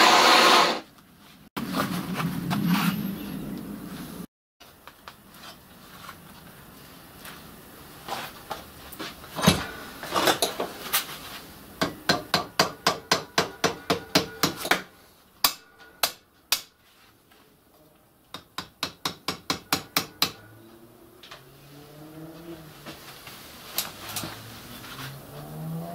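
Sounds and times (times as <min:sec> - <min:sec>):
hammer striking metal strip: 0:11.8 - 0:16.7.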